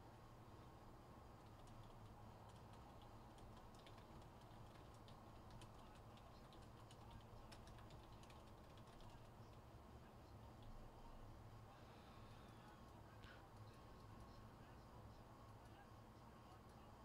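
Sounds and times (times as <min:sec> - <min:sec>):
low steady hum: 0:00.0 - 0:17.0
typing on computer keyboard: 0:01.4 - 0:09.6.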